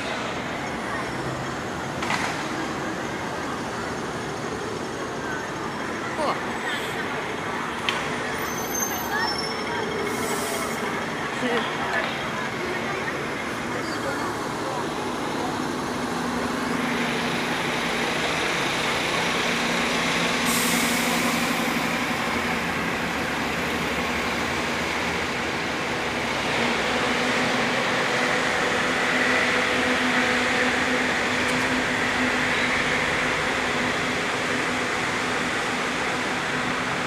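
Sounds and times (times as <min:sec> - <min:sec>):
street traffic rumble: 0:00.0 - 0:37.0
bus air brake hiss: 0:10.1 - 0:10.9, 0:20.4 - 0:21.6.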